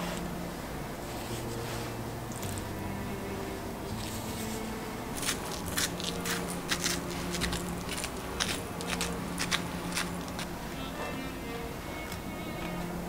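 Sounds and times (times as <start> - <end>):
pepper mill grinding: 5.2 - 10.5.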